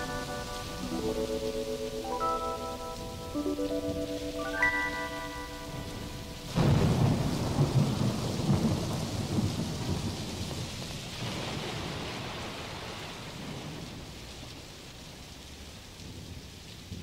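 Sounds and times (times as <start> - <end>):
held music chord: 0.0 - 7.2
thunder rumble: 0.0 - 14.5
steady rain: 0.0 - 17.0.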